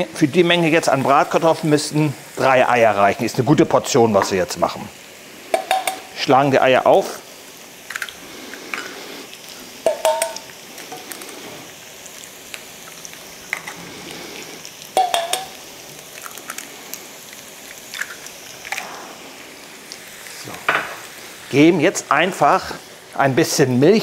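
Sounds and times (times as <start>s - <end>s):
potatoes sizzling in oil: 0.0s - 24.0s
eggs knocked on metal bowl rim: 5.6s - 6.0s, 9.9s - 10.4s, 15.0s - 15.5s
metal bowl ringing: 9.9s - 10.4s, 15.0s - 15.5s.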